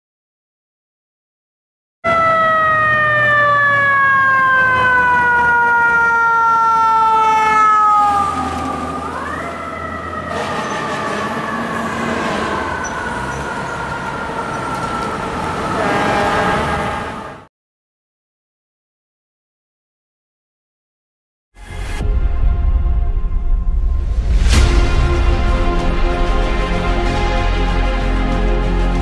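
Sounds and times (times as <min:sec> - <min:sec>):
fire truck mechanical siren: 0:02.0 - 0:17.5
city traffic rumble: 0:02.1 - 0:17.5.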